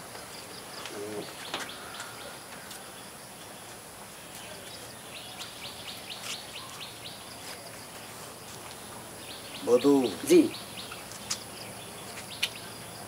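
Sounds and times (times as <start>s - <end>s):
bird chirping: 0.2s - 13.0s.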